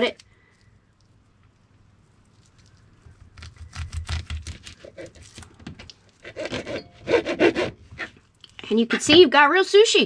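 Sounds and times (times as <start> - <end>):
serrated knife sawing through sushi: 6.2 - 8.1.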